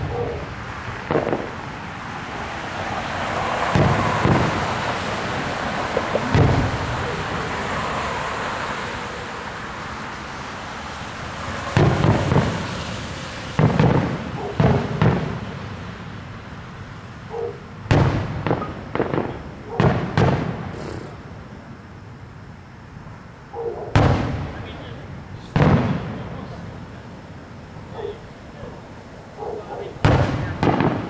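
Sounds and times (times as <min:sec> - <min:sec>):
distant fireworks booms: 0:00.0 - 0:01.8, 0:03.3 - 0:07.8, 0:11.5 - 0:16.2, 0:17.8 - 0:21.5, 0:23.8 - 0:27.0, 0:29.9 - 0:31.0
steady background noise: 0:00.0 - 0:31.0.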